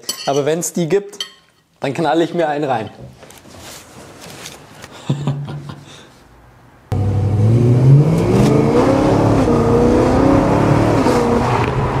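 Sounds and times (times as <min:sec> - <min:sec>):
car engine accelerating: 0:06.9 - 0:12.0.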